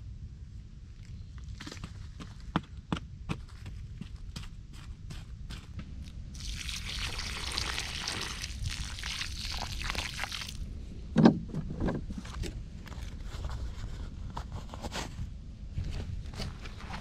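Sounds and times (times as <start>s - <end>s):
water splashing: 6.0s - 10.7s
water pouring into puddle: 6.3s - 10.7s.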